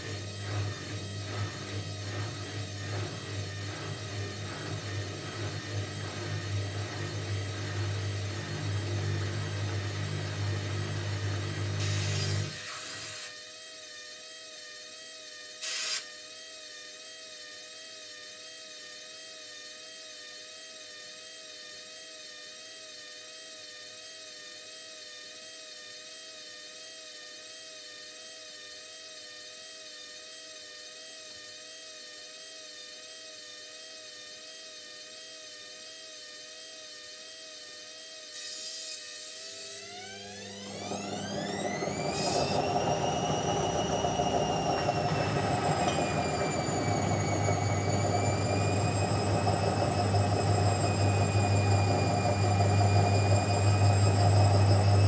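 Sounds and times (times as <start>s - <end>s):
washing machine motor whining: 0.0s - 13.4s, 37.3s - 55.0s.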